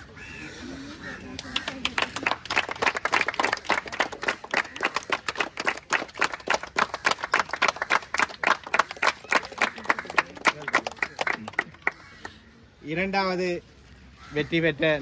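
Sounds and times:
crowd applauding: 1.5s - 12.4s.

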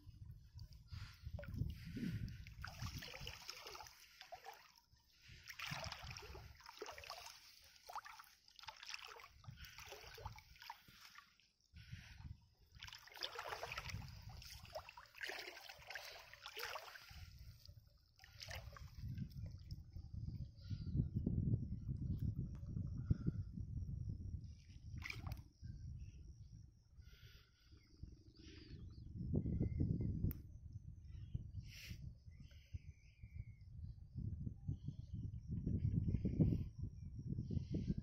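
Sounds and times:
water splashing and sloshing: 0.5s - 19.8s, 25.0s - 25.4s.

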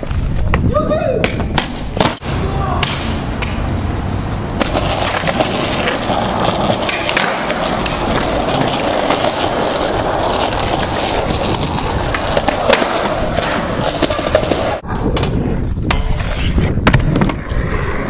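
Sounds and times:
skateboard wheels rolling on concrete: 0.0s - 18.0s
skateboard clacking: 2.8s - 3.7s, 4.5s - 18.0s.

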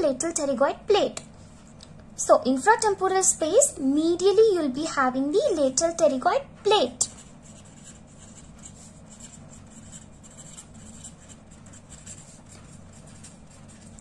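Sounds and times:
low steady hum: 0.0s - 14.0s
pen scratching on paper: 7.1s - 14.0s.

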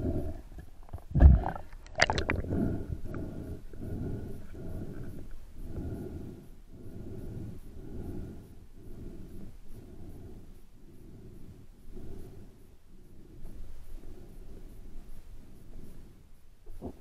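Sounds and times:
muffled underwater water noise: 0.0s - 6.0s.

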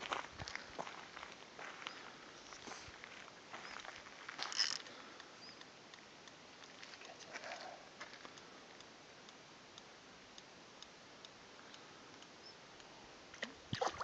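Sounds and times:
faint ticks and clicks: 0.0s - 13.7s
fish splashing in water: 13.4s - 14.0s.

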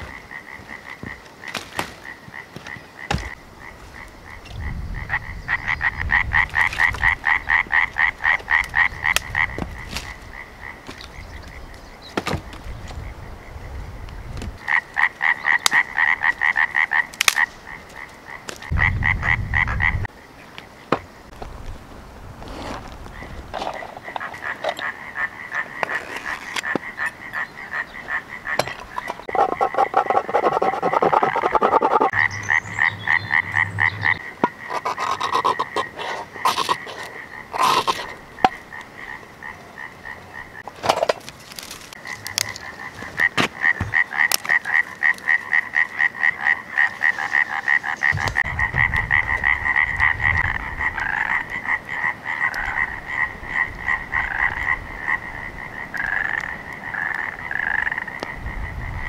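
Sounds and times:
frogs trilling: 0.0s - 21.4s, 23.1s - 40.7s, 41.9s - 59.0s
ferro rod scraping: 28.8s - 32.1s.

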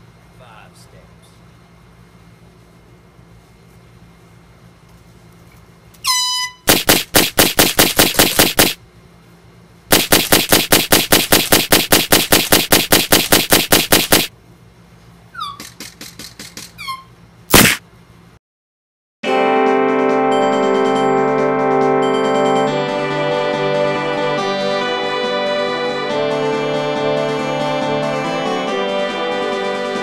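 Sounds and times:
automatic gunfire: 6.7s - 8.8s, 9.9s - 14.3s
shots with falling whines: 6.7s - 8.8s, 9.9s - 14.3s, 17.5s - 17.8s
loud single gunshot: 17.5s - 17.8s.

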